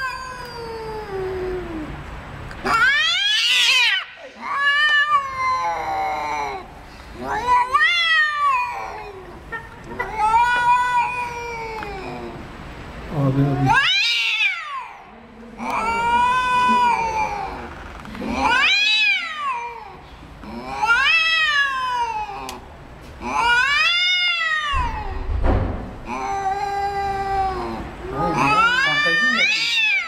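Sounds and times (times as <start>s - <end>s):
cats yowling: 0.0s - 2.0s, 2.6s - 12.6s, 13.2s - 25.4s, 26.0s - 30.0s.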